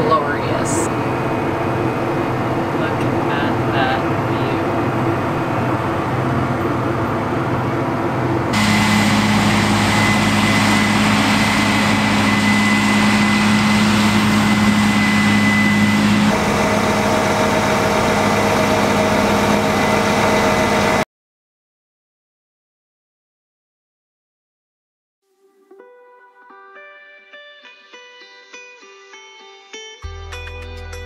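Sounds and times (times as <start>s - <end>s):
combine harvester machinery drone: 0.0s - 21.0s
high steady whine: 0.0s - 21.0s
tractor engine running: 0.0s - 21.0s.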